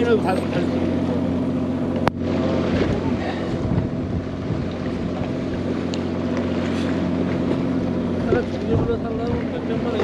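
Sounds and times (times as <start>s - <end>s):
boat motor humming: 0.0s - 10.0s
wind on microphone: 2.0s - 5.9s, 7.3s - 10.0s.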